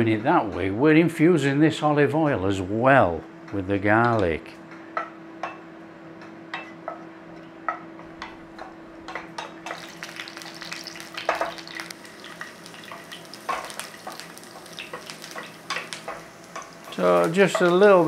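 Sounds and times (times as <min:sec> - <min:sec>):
garlic sizzling in oil: 0:09.6 - 0:18.0.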